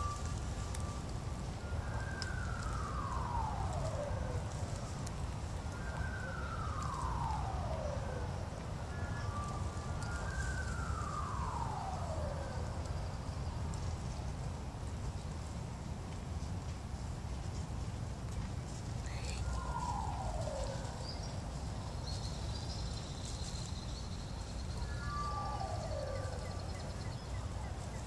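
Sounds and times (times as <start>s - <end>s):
siren wailing: 0.0s - 14.2s, 19.0s - 22.8s, 24.1s - 28.0s.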